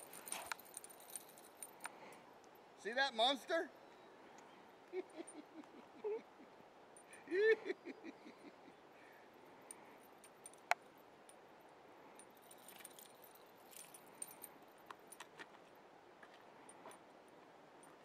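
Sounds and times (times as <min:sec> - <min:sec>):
light clicks and jingles: 0:00.0 - 0:02.7, 0:06.5 - 0:07.3, 0:08.8 - 0:18.0.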